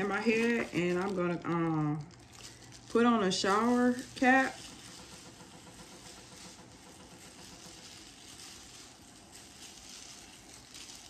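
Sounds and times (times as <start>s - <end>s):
plastic glove crinkling in hair: 0.0s - 11.0s.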